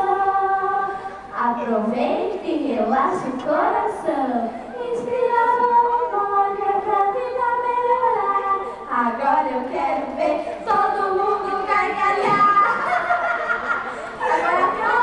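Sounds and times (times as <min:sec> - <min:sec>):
children's choir singing: 0:00.0 - 0:01.2, 0:04.8 - 0:15.0.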